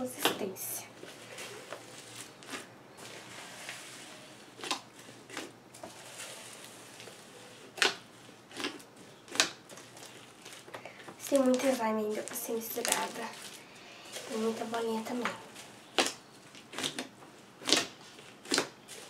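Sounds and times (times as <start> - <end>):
styrofoam beads rustling: 0.5 - 16.9, 18.0 - 19.0
slime popping and crackling: 4.6 - 13.6, 14.2 - 19.0.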